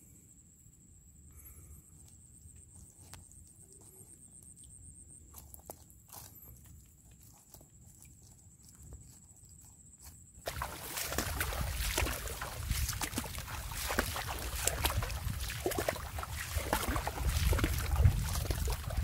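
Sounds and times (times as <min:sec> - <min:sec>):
water splashing and sloshing: 0:10.4 - 0:19.0
wind rumble on microphone: 0:10.6 - 0:19.0.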